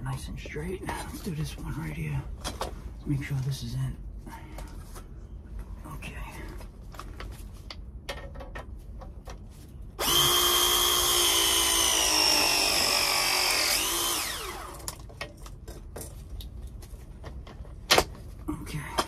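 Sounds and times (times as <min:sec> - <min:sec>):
press tool motor whining: 0:10.0 - 0:14.9.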